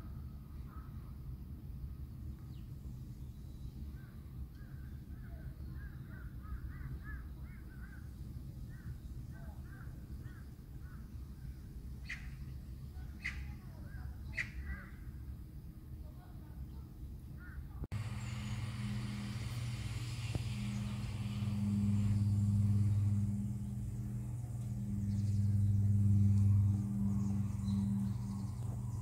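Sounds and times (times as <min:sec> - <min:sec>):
birds chirping: 0:02.3 - 0:15.1, 0:17.0 - 0:29.0
sharp bird calls: 0:12.0 - 0:15.0, 0:18.0 - 0:29.0
low rumble: 0:17.8 - 0:29.0.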